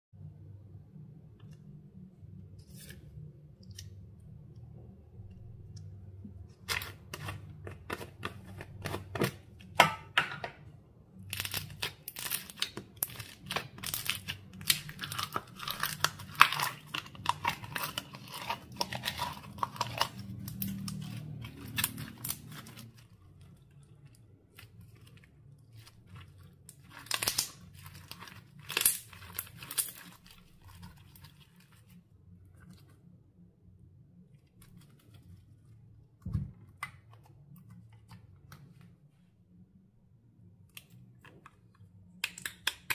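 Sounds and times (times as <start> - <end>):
slime crackling and popping: 11.3 - 31.2.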